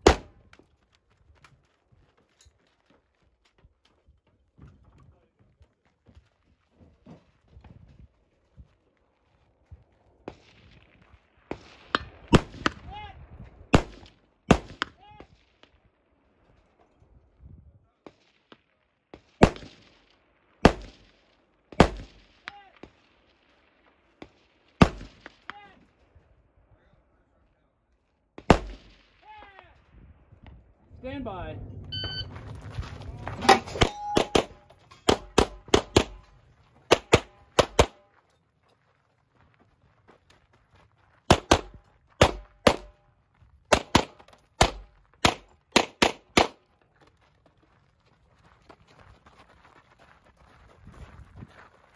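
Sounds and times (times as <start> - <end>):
sharp gunshots with echo: 0.0 - 0.4, 11.4 - 12.9, 13.7 - 15.0, 19.3 - 22.6, 24.8 - 25.6, 28.4 - 29.3, 33.4 - 38.0, 41.3 - 43.0
bullet hitting distant steel: 33.5 - 38.1.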